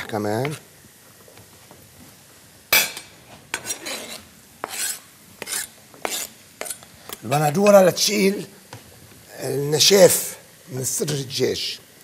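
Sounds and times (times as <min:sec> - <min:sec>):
knife scraping cutting board: 0:03.5 - 0:06.9.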